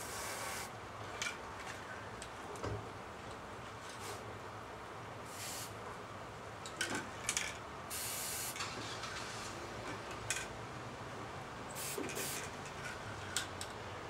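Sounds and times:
aerosol can spraying: 0:07.9 - 0:08.6, 0:11.8 - 0:12.4.

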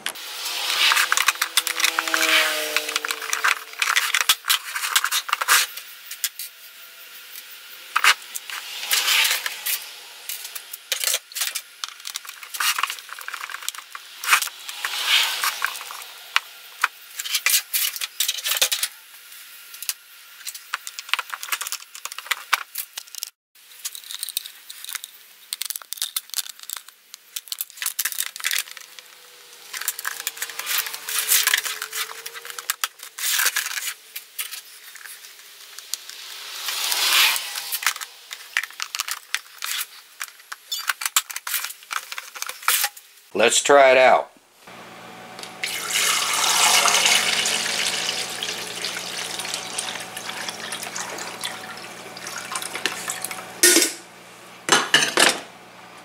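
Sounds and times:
plastic pieces clicking: 0:20.8 - 0:29.0.

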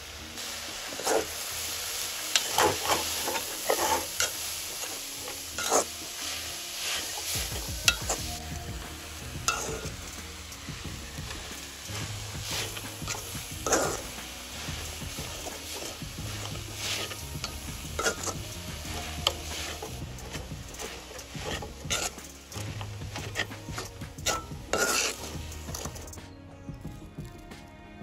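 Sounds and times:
beans sizzling in a metal pot: 0:00.0 - 0:26.2
spoon scraping a pot: 0:15.1 - 0:26.1.

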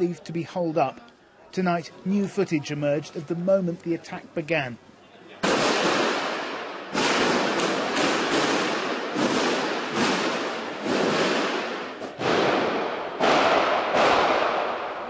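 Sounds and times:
gunshots echoing indoors: 0:05.4 - 0:15.0.

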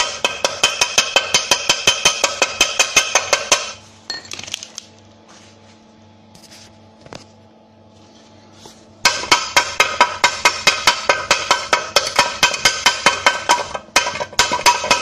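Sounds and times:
hammer tapping on metal: 0:00.0 - 0:03.8, 0:09.0 - 0:15.0.

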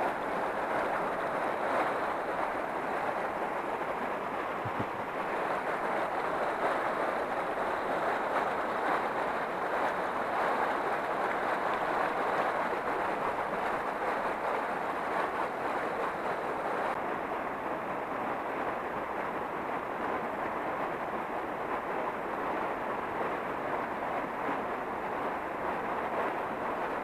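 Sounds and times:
water rushing over rocks: 0:00.0 - 0:17.1.

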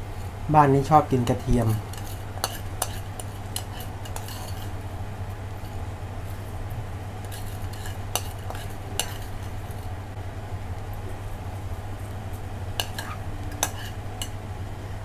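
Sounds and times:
metal spoon scraping ceramic dish: 0:01.9 - 0:04.7, 0:12.8 - 0:14.0.

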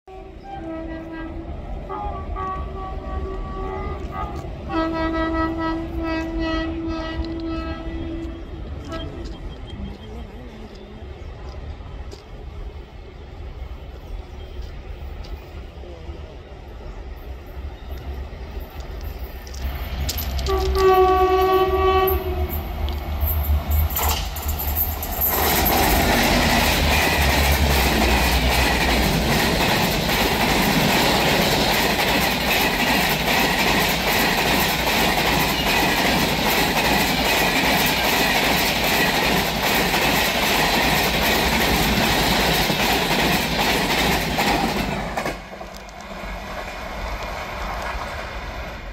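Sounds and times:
locomotive horn blast: 0:00.1 - 0:09.5, 0:20.4 - 0:22.7
train wheels rushing on rails: 0:00.4 - 0:48.9
clickety-clack over rail joints: 0:02.4 - 0:12.7, 0:17.9 - 0:48.9.

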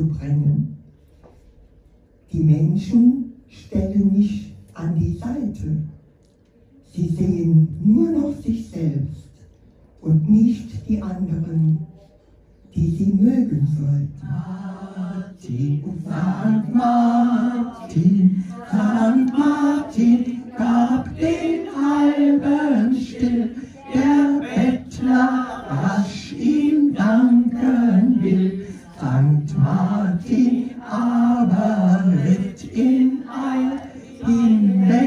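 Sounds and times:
group singing unaccompanied: 0:14.2 - 0:35.0.

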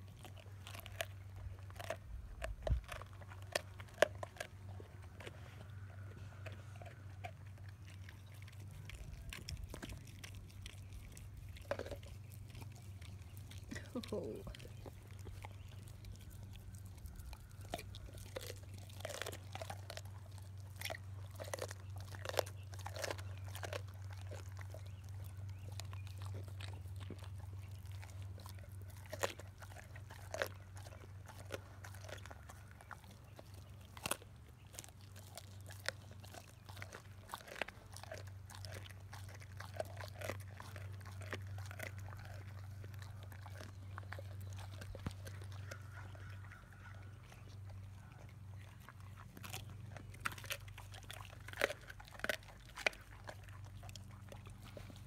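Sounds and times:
dogs crunching bones: 0:00.0 - 0:55.0
steady low hum: 0:00.0 - 0:55.0.

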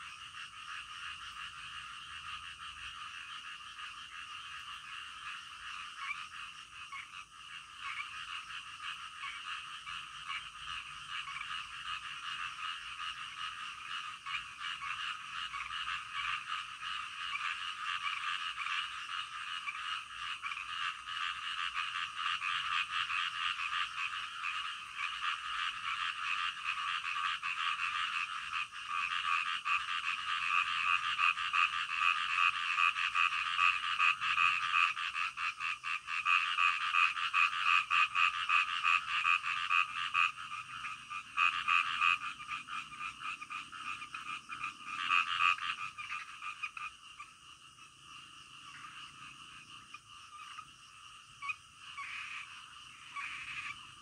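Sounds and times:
chorus of frogs croaking: 0:00.0 - 0:54.0.

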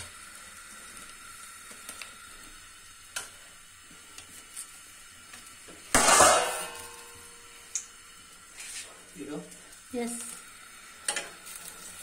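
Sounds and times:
gas flame flaring: 0:00.0 - 0:12.0
metal skewer clattering on grate: 0:06.0 - 0:07.0.

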